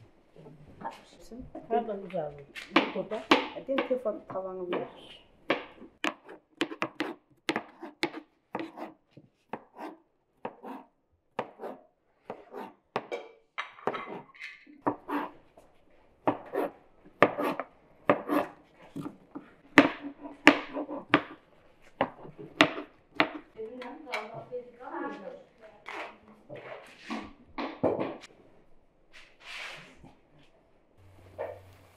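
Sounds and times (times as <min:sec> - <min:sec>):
knife chopping on cutting board: 0:05.5 - 0:13.2, 0:13.8 - 0:15.3, 0:16.2 - 0:23.5.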